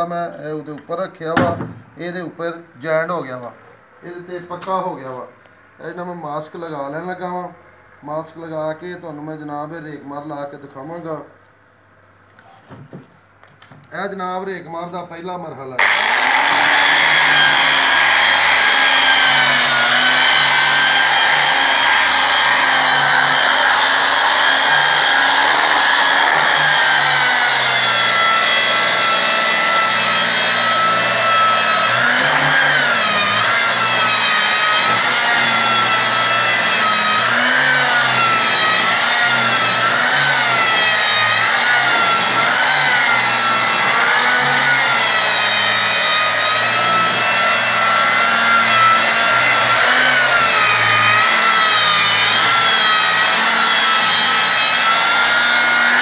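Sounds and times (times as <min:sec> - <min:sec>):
angle grinder sanding wood: 0:15.8 - 0:56.0.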